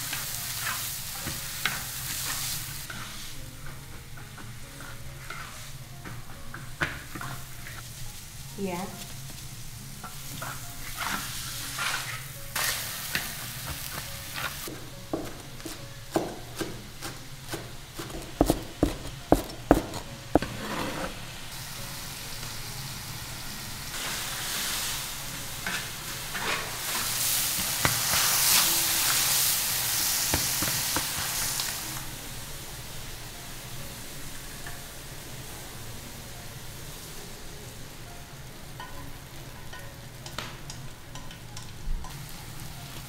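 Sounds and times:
rice sizzling in a wok: 0:00.0 - 0:43.0
metal spatula scraping wok: 0:00.1 - 0:03.4, 0:04.7 - 0:05.8, 0:10.0 - 0:13.5, 0:19.9 - 0:21.5, 0:25.6 - 0:29.3.

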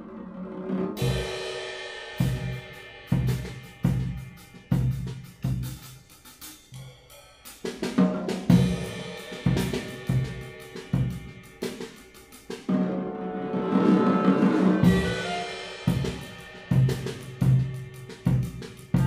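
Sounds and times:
drum kit hits and cymbals: 0:01.0 - 0:19.0
clarinet playing held notes: 0:13.0 - 0:16.0.

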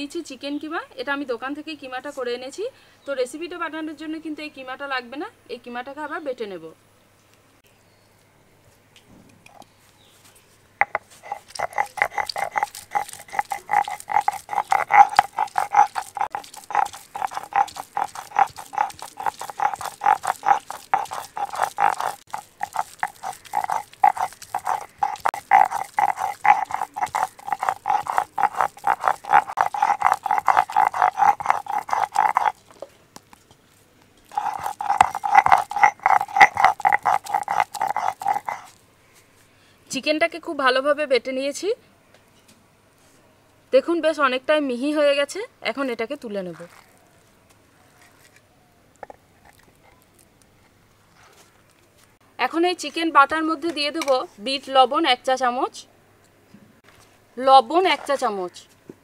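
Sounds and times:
electric mixer grinder running: 0:11.3 - 0:32.6, 0:34.3 - 0:38.7.

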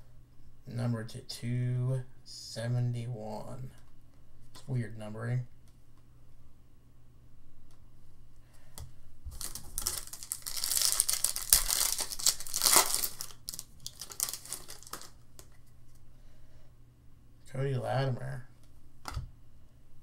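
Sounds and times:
foil wrapper tearing and crinkling: 0:09.4 - 0:15.2
cards rustling and clicking: 0:09.4 - 0:15.7.

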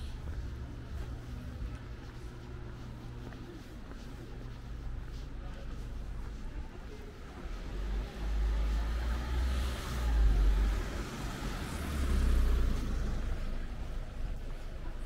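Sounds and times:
cars passing close by: 0:07.7 - 0:14.4.

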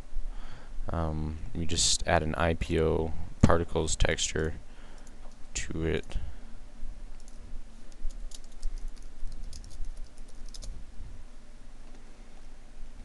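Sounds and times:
low steady hum: 0:00.0 - 0:13.0
keyboard and mouse clicks: 0:07.2 - 0:10.8.

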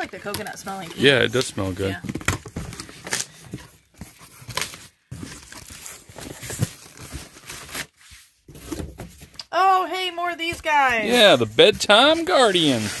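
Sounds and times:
cardboard scraping and rustling: 0:00.0 - 0:09.4, 0:10.4 - 0:13.0
tissue paper crinkling: 0:02.7 - 0:08.4, 0:10.5 - 0:13.0.

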